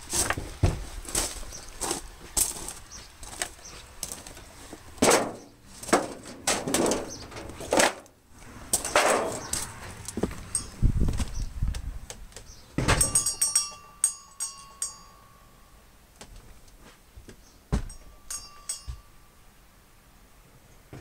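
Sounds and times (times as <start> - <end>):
door opening with thump: 12.8 - 13.2
rattling metallic clinking knocks: 12.8 - 15.4, 17.7 - 19.2.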